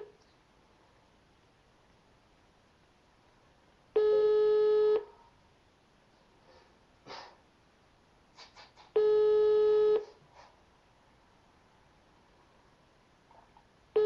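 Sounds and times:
telephone ringback tone: 0:04.0 - 0:05.1, 0:09.0 - 0:10.0.

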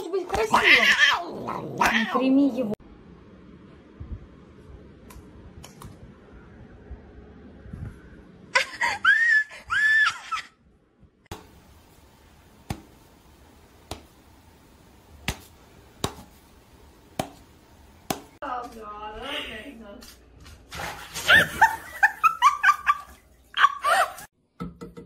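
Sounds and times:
high-pitched cries: 0:08.9 - 0:10.6.

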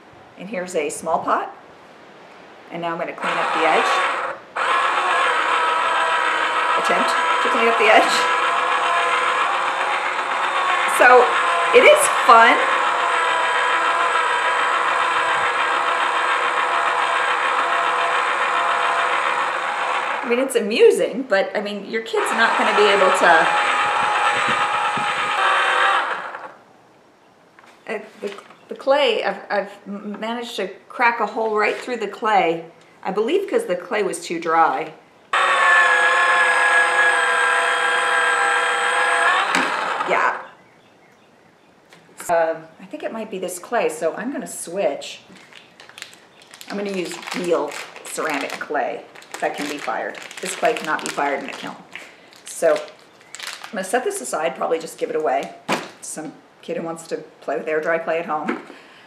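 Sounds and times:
small electric motor whining: 0:03.2 - 0:20.5, 0:22.1 - 0:26.6, 0:35.3 - 0:40.6, 0:45.4 - 0:53.7.

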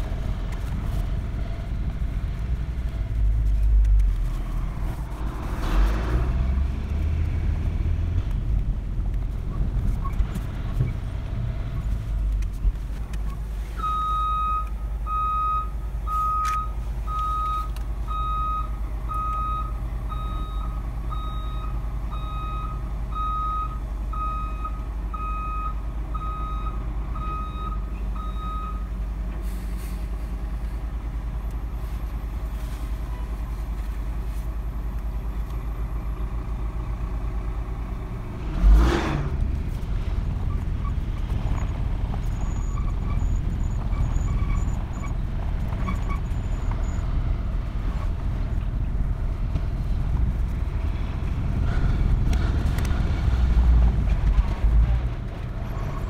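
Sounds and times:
low engine rumble: 0:00.0 - 0:56.0
truck reversing alarm beeping: 0:13.8 - 0:28.9.

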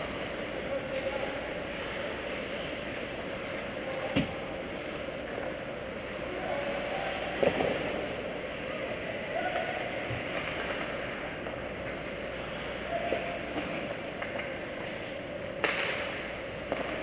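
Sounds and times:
skates on ice: 0:09.4 - 0:17.0.

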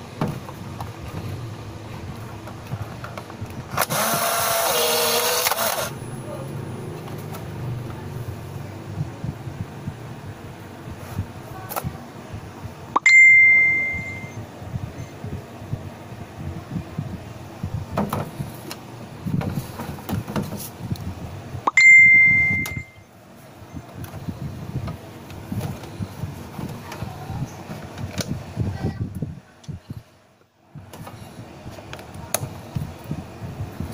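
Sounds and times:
camera whine: 0:03.7 - 0:06.0.

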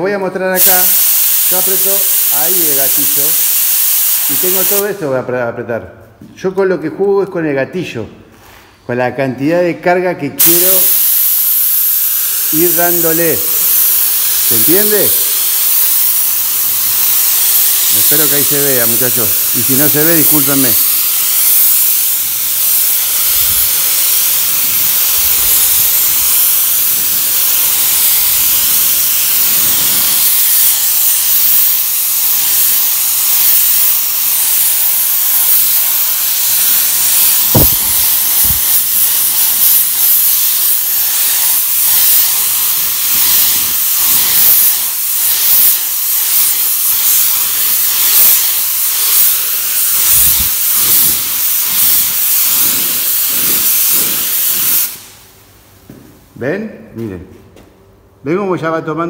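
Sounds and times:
paint spray gun hissing: 0:00.6 - 0:05.0, 0:10.4 - 0:55.3
sharp knock: 0:37.5 - 0:37.9.

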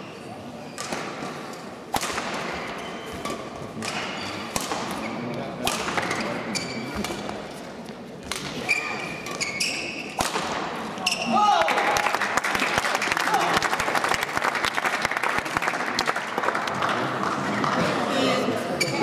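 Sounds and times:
rackets hitting shuttlecock: 0:00.8 - 0:07.5, 0:08.2 - 0:11.4.

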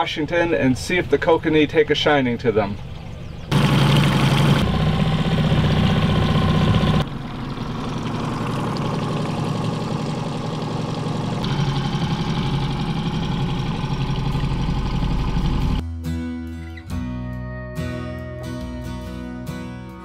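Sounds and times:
outboard motor running: 0:02.9 - 0:15.8.

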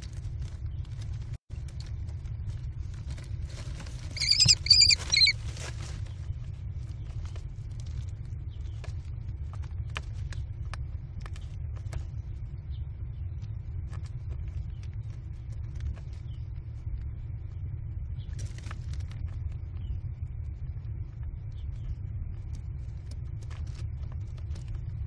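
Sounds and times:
steady low rumble: 0:00.0 - 0:25.0
feet scratching on wood chips: 0:03.4 - 0:05.8
nestlings shrill rapid calls: 0:04.2 - 0:05.4.

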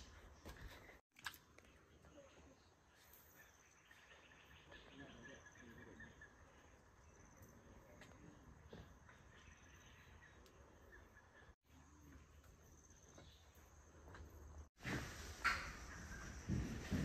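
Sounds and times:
insects chirping: 0:03.1 - 0:11.1, 0:11.7 - 0:16.9.

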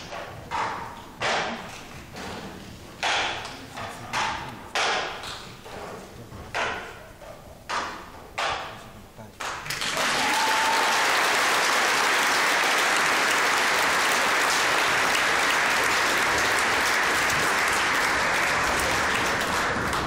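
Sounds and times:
large audience applauding: 0:09.5 - 0:20.0.

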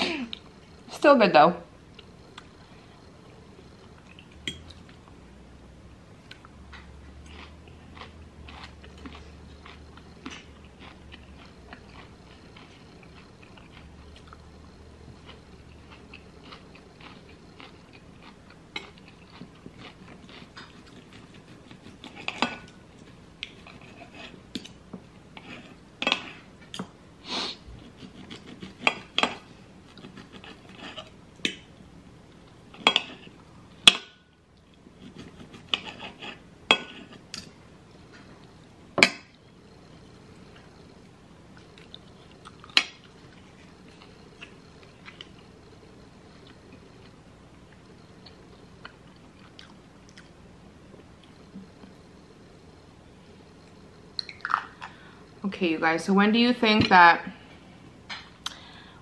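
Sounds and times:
chewing: 0:06.2 - 0:24.8, 0:27.8 - 0:31.2, 0:40.0 - 0:50.4.

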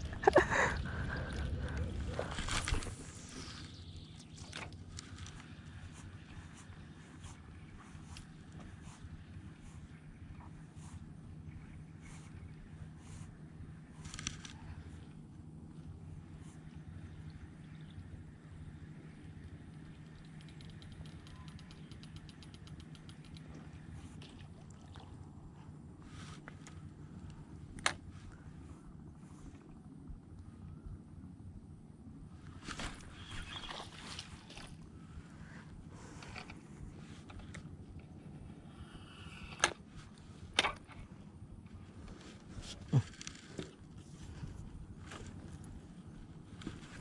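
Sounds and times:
low outdoor rumble: 0:00.0 - 0:47.0
sharp clicks: 0:20.2 - 0:23.6
fishing rod and reel handling: 0:39.4 - 0:39.8
clicks and rustles: 0:39.5 - 0:45.8.

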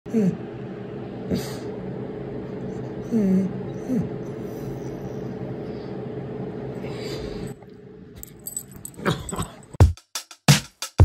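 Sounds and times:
dog whining: 0:02.5 - 0:06.0
collar tags jingling: 0:08.2 - 0:09.8
drum beat: 0:09.8 - 0:11.0.

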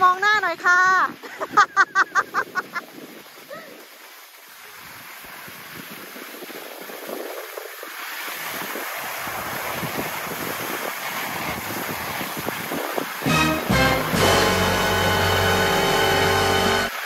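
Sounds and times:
wind on microphone: 0:04.8 - 0:13.3
music: 0:13.2 - 0:17.0.

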